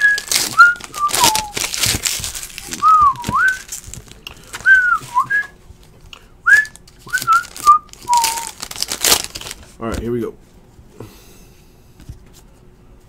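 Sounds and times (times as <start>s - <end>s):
person whistling a tune: 0.0s - 1.6s, 2.8s - 3.7s, 4.6s - 5.6s, 6.4s - 8.6s
trading cards and wrappers rustling: 0.0s - 10.1s.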